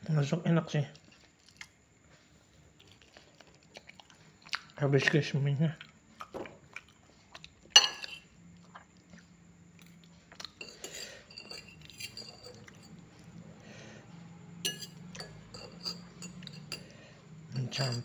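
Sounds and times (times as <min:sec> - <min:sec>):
cutlery clinking on a plate: 0:07.8 - 0:08.3, 0:10.6 - 0:13.0, 0:14.7 - 0:16.9, 0:17.6 - 0:18.0.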